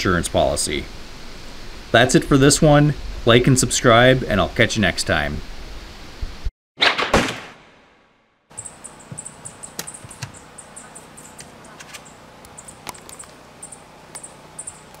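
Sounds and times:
high-pitched chirps: 8.5 - 14.9
sharp clicks: 9.5 - 10.4.

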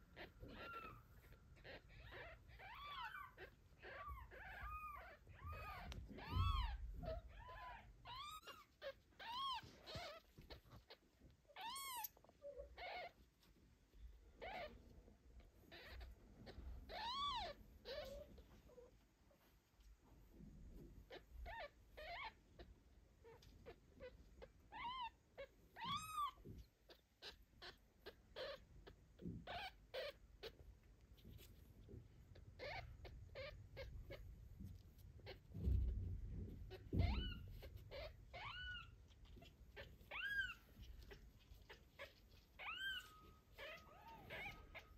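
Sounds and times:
kitten squeaking: 0.0 - 18.9, 21.0 - 44.9.

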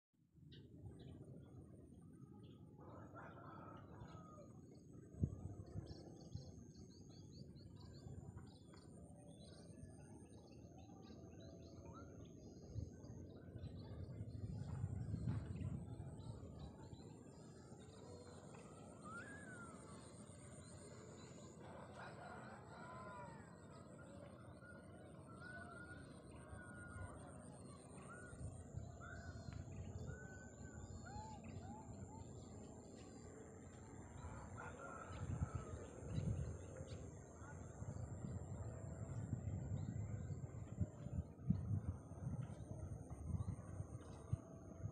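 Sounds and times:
steady high-pitched whine: 0.3 - 44.9
bird calls and chirps: 2.2 - 44.9
wind rumbling on microphone: 3.5 - 8.8, 12.2 - 21.6, 26.5 - 44.9.

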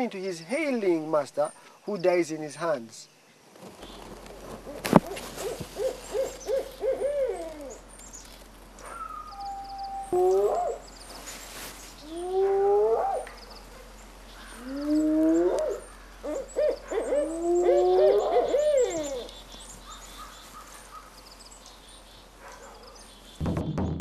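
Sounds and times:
owl hooting: 4.7 - 7.9, 8.8 - 11.2, 12.0 - 21.2.

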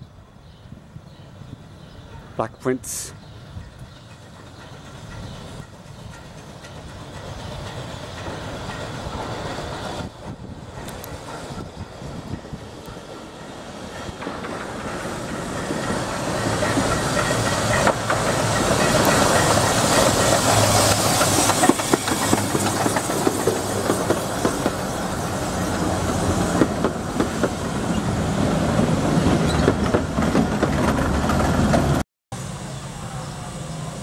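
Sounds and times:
wheels clicking over rail joints: 3.7 - 24.9, 29.2 - 32.0
steam hissing: 7.0 - 26.6.

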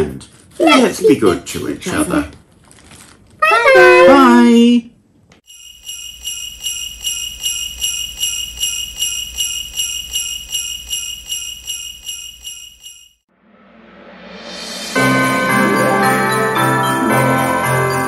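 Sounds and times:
jingle bells shaken: 5.5 - 13.2, 14.9 - 18.0.

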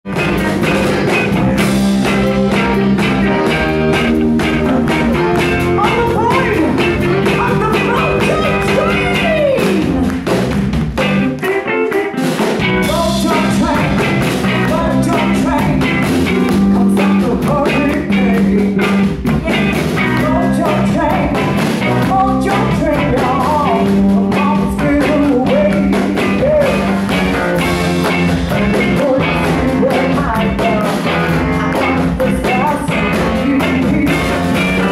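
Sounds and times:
drums: 0.0 - 34.9
electric bass: 0.0 - 34.9
electric guitar: 0.0 - 34.9
woman singing: 5.8 - 10.1.

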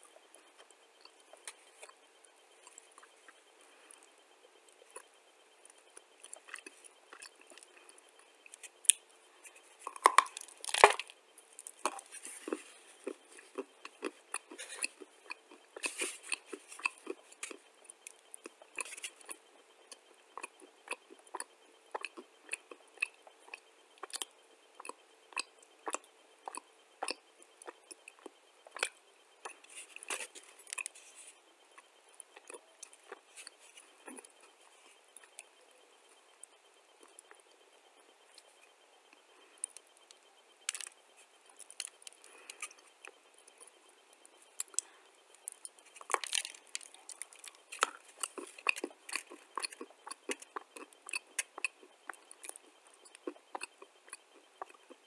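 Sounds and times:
chewing and crunching: 0.0 - 55.0
mouth clicks: 47.0 - 55.0.

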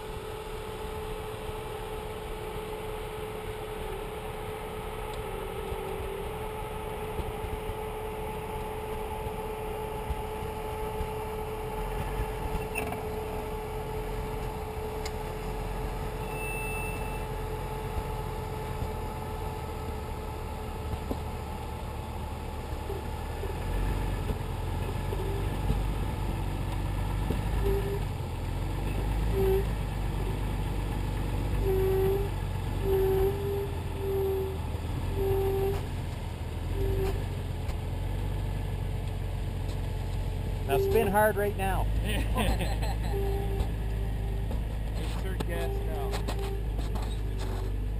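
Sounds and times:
engine rumbling at low speed: 0.0 - 47.9
short tone blips: 16.2 - 17.3, 27.6 - 28.0, 28.9 - 29.7, 31.6 - 35.8, 36.8 - 37.2, 40.7 - 41.4, 43.0 - 44.4.

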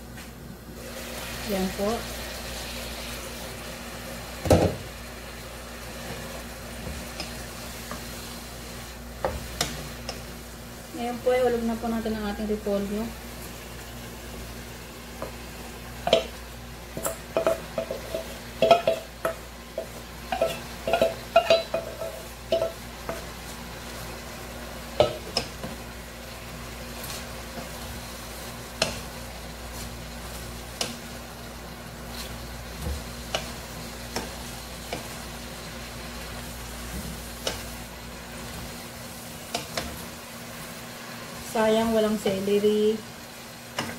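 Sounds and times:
steady sizzle: 0.0 - 43.9
cabbage being stirred: 15.2 - 43.0
spatula knocking on metal bowl: 17.0 - 23.2.

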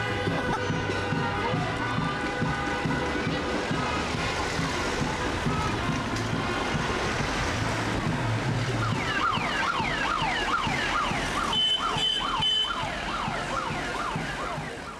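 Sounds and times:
ambulance siren yelping: 8.5 - 14.9.

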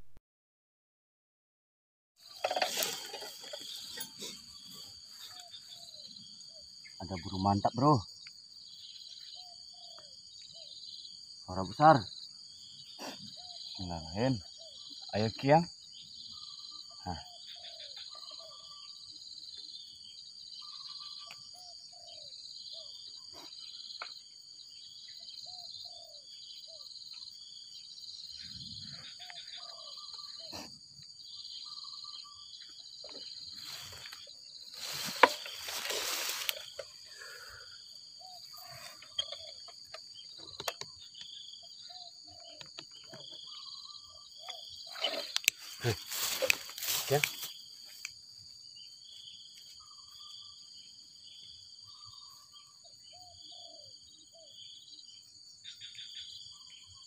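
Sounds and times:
crickets and insects chirping: 2.2 - 57.0
rustling: 33.6 - 37.0.

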